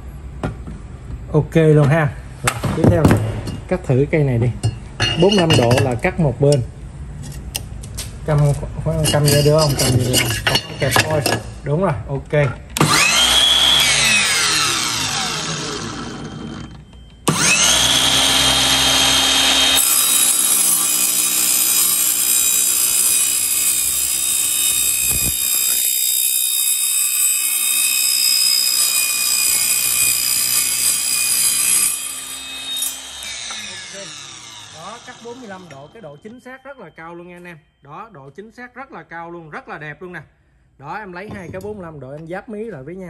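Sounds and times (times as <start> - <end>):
saw blade cutting steel: 4.7 - 7.6, 8.9 - 11.5, 12.8 - 16.7, 17.3 - 36.0
saw motor whining: 12.8 - 36.1.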